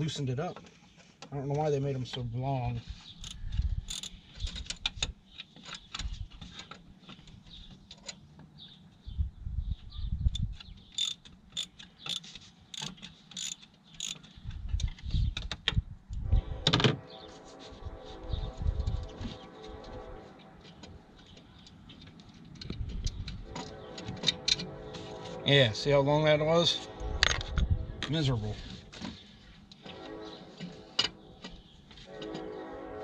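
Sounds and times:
hand ratchet clicking: 3.2s - 5.0s, 10.4s - 14.2s.

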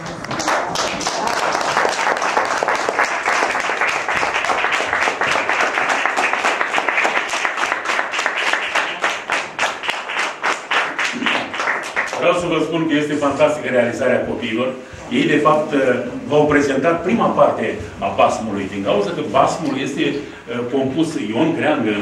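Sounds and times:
audience applauding: 0.0s - 12.9s.

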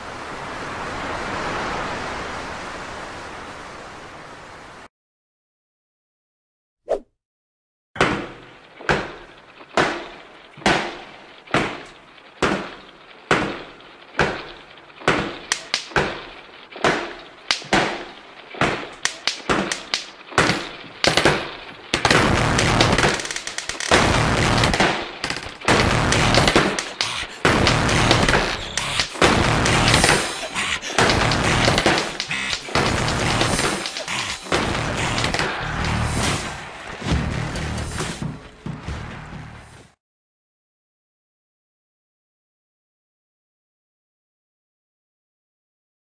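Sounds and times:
sharp bangs: 8.0s - 39.4s.

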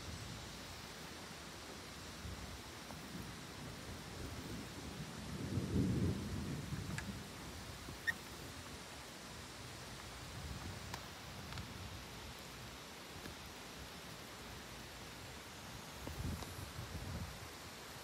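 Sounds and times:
rain hissing: 0.0s - 18.0s
thunder rumbling: 3.6s - 7.8s.

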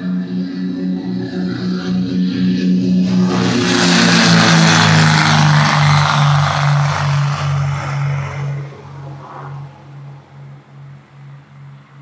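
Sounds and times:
propeller plane drone: 0.0s - 12.0s
rushing noise: 1.0s - 10.2s.

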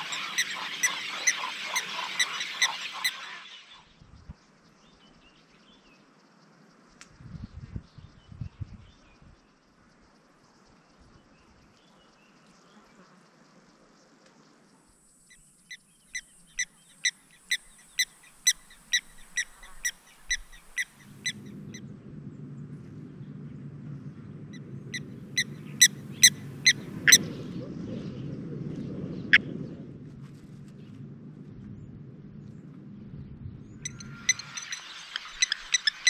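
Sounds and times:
bird metallic alarm call: 0.0s - 3.8s, 15.3s - 21.8s, 24.9s - 27.4s, 33.8s - 36.0s.

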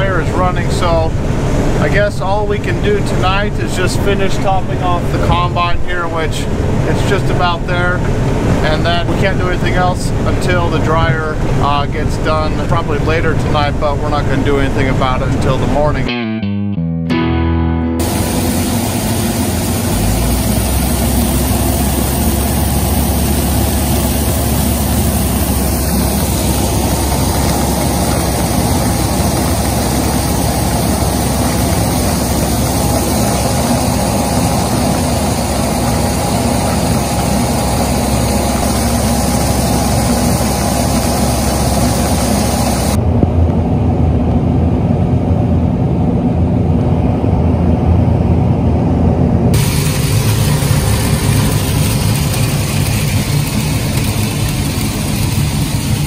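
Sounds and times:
machinery humming: 0.0s - 16.2s, 17.3s - 56.0s
steady hiss: 18.0s - 43.0s, 49.6s - 56.0s.

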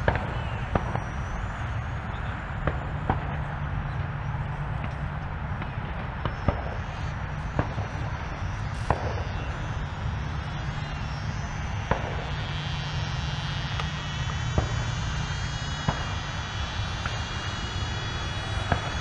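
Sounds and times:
electric ducted fan jet whine: 0.0s - 19.0s
sharp clicks: 4.8s - 19.0s.

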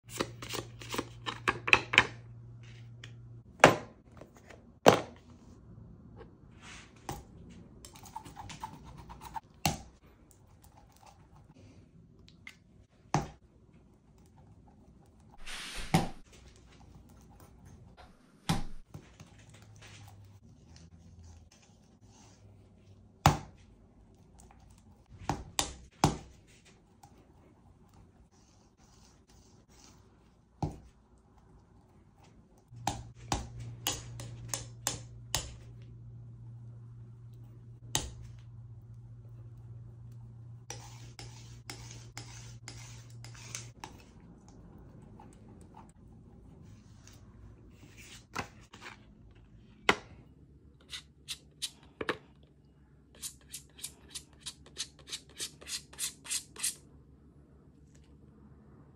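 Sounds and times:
low steady hum: 0.1s - 54.4s
palette knife scraping paint: 40.6s - 44.2s, 53.2s - 56.8s.

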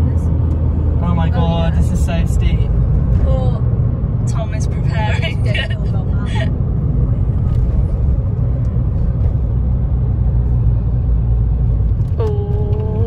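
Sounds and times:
car engine and road rumble: 0.0s - 13.0s
passenger exclaiming ohh: 12.2s - 13.0s.

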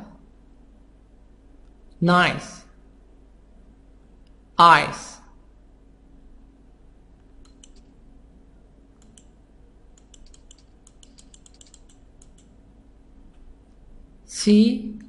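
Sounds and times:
low steady hum: 0.0s - 15.0s
computer keys clicking: 7.2s - 8.0s, 9.0s - 12.6s.

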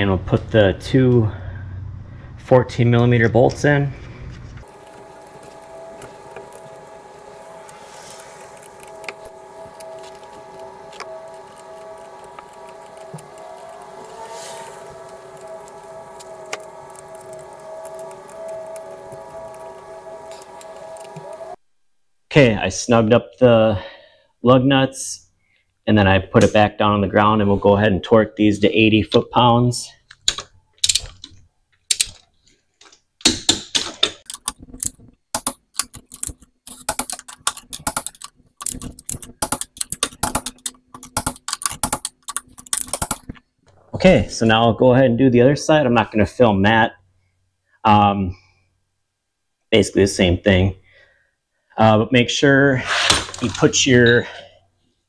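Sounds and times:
steady wavering whine: 4.6s - 21.6s.

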